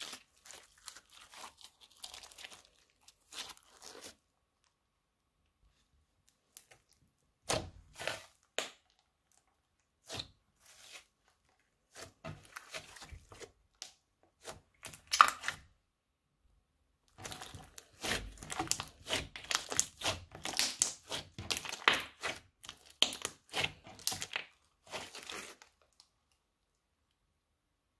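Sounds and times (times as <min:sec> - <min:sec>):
slime crackling pops: 0:18.4 - 0:23.3.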